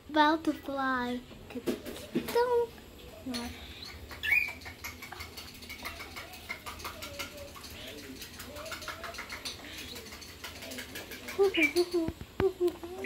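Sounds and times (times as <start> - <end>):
bird claws tapping on floor: 3.3 - 12.4.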